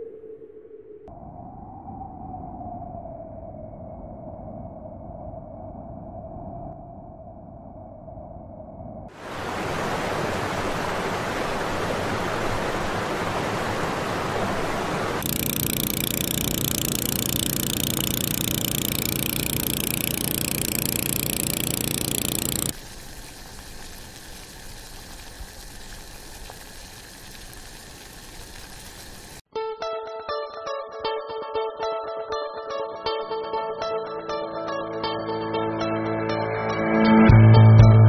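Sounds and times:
river water rushing: 9.2s - 15.2s
steady drone with low hum: 15.2s - 22.8s.

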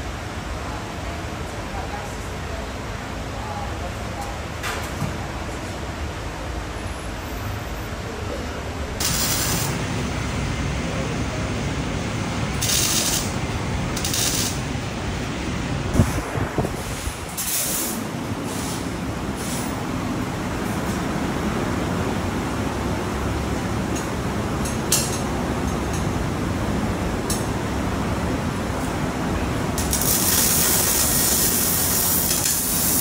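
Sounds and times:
workshop background noise: 0.0s - 33.0s
compressed air hissing: 29.9s - 33.0s.

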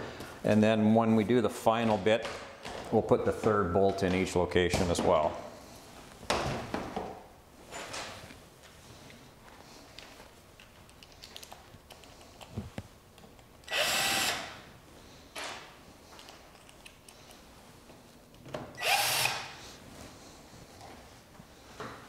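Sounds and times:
light clicks of handled parts: 9.8s - 13.5s, 16.1s - 17.5s
cordless drill running: 13.6s - 14.6s, 18.8s - 19.6s.

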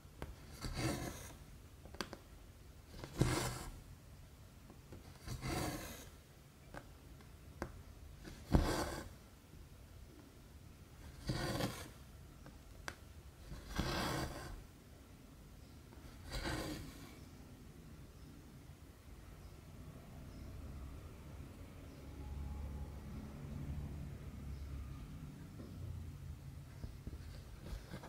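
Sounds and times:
thread rasping through cloth: 0.2s - 2.1s, 2.9s - 3.8s.

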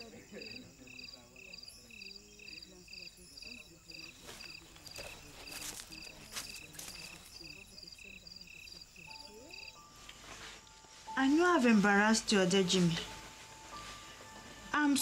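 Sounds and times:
faint murmuring voices: 0.0s - 10.6s
crickets chirping: 0.0s - 14.4s.

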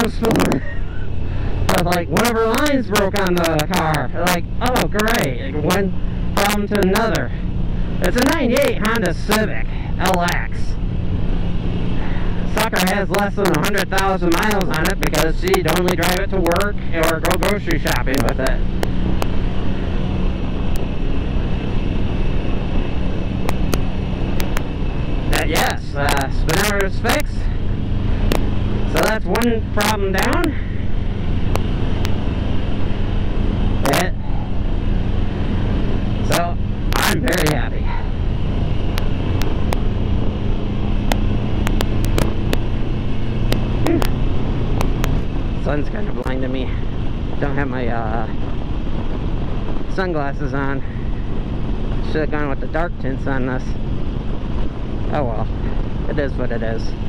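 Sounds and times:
motorcycle engine running: 0.0s - 57.0s
wind and road noise: 0.0s - 57.0s
sharp clicks: 23.4s - 24.7s, 38.8s - 39.9s, 41.0s - 42.7s.

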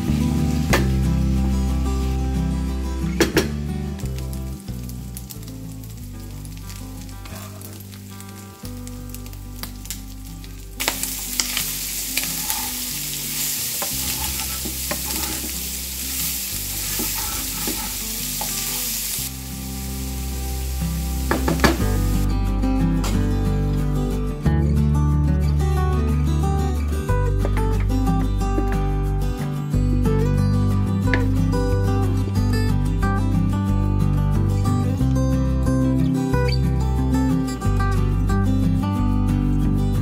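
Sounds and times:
sausage sizzling in a frying pan: 4.1s - 22.3s
wooden spatula scraping a pan: 12.2s - 18.9s.

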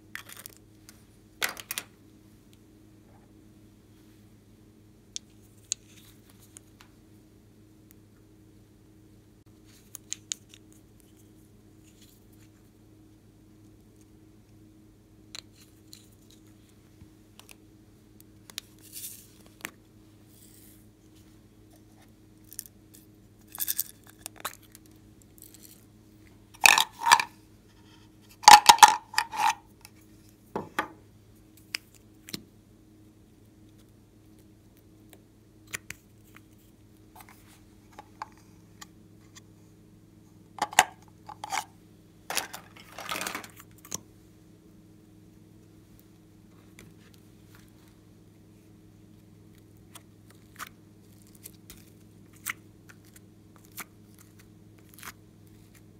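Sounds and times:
faint low hum: 0.0s - 55.9s
plastic containers clicking: 26.6s - 27.3s, 28.4s - 29.6s.

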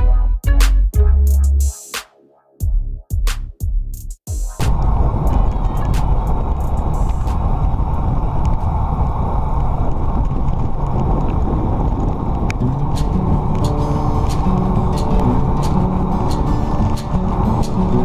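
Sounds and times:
wind buffeting microphone: 4.6s - 18.0s.

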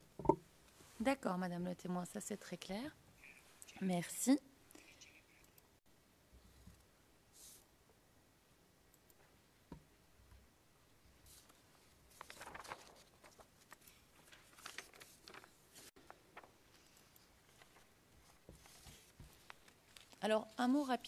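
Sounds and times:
paper sheets rustling: 11.3s - 20.8s.

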